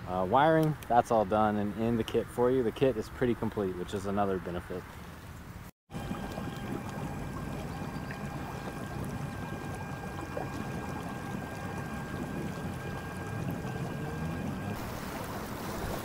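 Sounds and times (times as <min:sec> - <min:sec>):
water rushing and splashing: 0:04.8 - 0:16.0
electric motor whine: 0:06.0 - 0:15.2.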